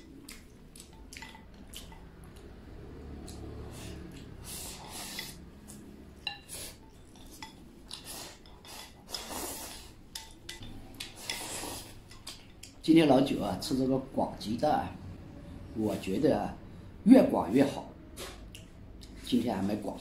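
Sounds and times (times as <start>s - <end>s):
chopsticks clinking against a bowl: 0.0s - 2.6s, 5.1s - 9.3s, 10.1s - 12.8s.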